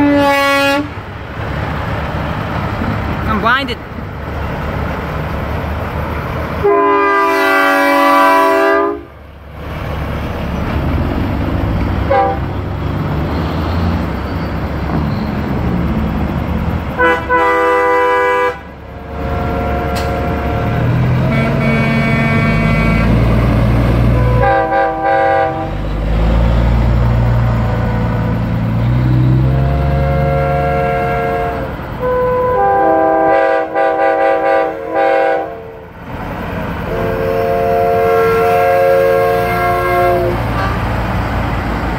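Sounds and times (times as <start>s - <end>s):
air horns blasting: 0.0s - 1.0s, 6.6s - 9.1s, 12.0s - 12.5s, 17.0s - 26.0s, 27.6s - 36.0s, 36.8s - 40.9s
diesel truck engines running: 0.0s - 41.9s.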